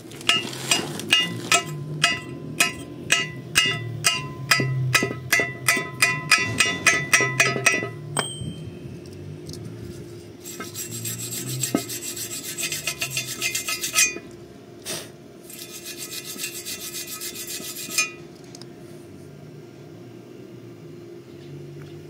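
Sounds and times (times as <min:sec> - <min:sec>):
wire brush scrubbing steel: 0:00.2 - 0:08.0, 0:10.4 - 0:14.4, 0:15.4 - 0:18.3.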